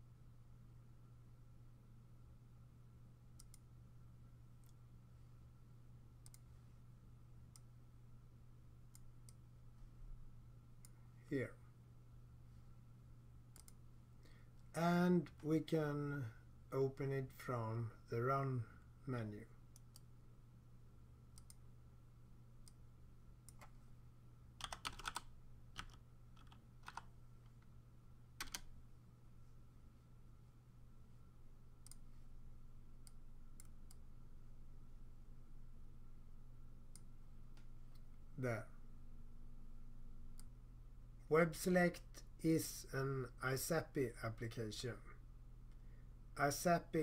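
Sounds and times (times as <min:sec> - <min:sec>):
faint low hum: 0:00.0 - 0:47.0
computer mouse clicking: 0:03.4 - 0:03.7, 0:06.2 - 0:06.5, 0:13.5 - 0:13.8, 0:21.4 - 0:21.6, 0:23.4 - 0:23.8, 0:24.6 - 0:27.6, 0:28.4 - 0:28.7, 0:31.8 - 0:32.1, 0:33.0 - 0:34.0
faint keyboard keystrokes: 0:24.6 - 0:27.6, 0:28.4 - 0:28.7.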